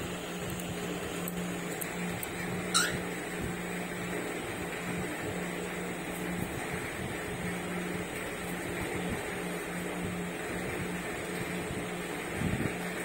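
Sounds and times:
steady low room hum: 0.0 - 13.0
cockatiel chirp: 2.7 - 3.0.

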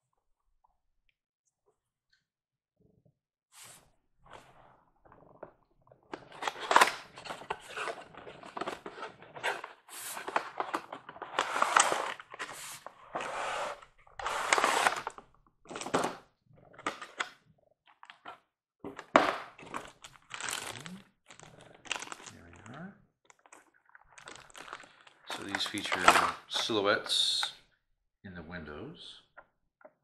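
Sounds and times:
plastic wrapping crinkling: 19.6 - 26.1.

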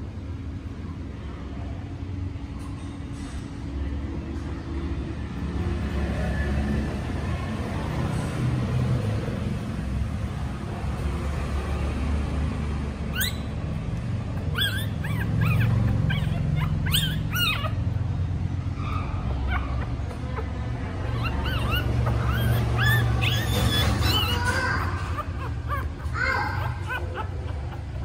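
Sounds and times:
puppy whimpering and squealing: 13.0 - 28.0.

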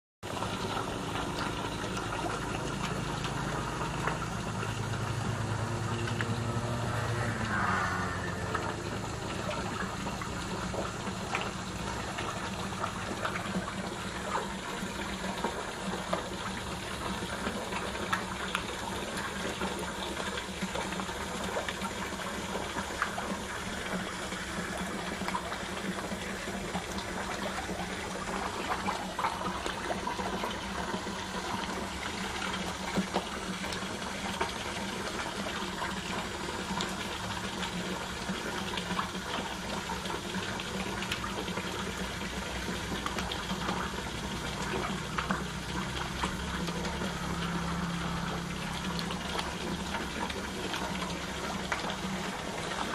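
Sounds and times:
water splashing into pond: 0.2 - 52.9
low hum: 0.3 - 15.0.

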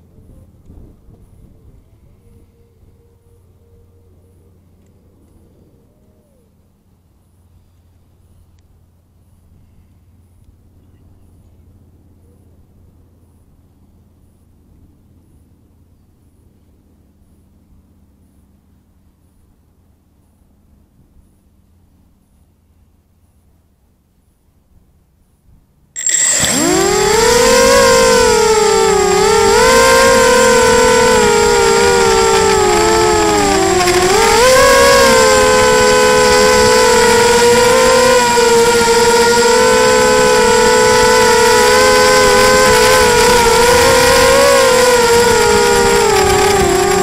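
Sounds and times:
drone propellers whining: 26.0 - 47.0
steady high-pitched tone: 26.0 - 47.0.

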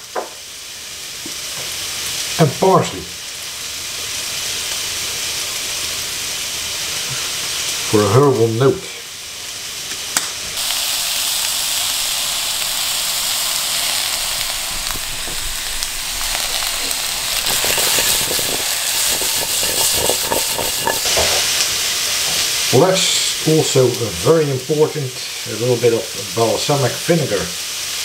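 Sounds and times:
vegetables sizzling in a frying pan: 0.0 - 28.0
stirring knocks and scrapes in pan: 16.3 - 22.5.

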